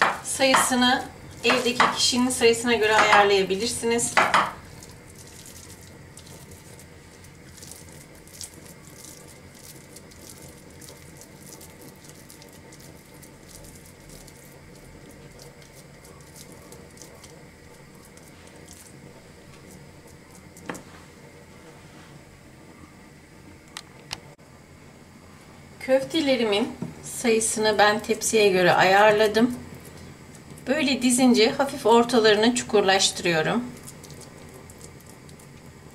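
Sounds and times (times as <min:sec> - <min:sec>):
wet handling of meat mixture: 0:04.6 - 0:22.0, 0:33.4 - 0:35.9.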